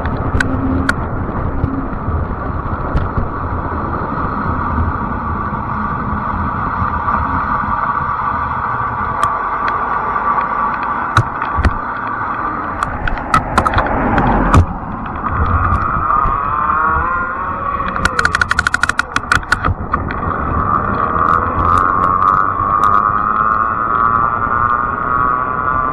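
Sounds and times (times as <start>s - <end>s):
car passing: 0.0s - 25.3s
electric motor whine: 0.0s - 25.9s
road and wind noise: 0.0s - 25.9s
rattling clicks: 9.2s - 16.6s, 17.8s - 24.8s.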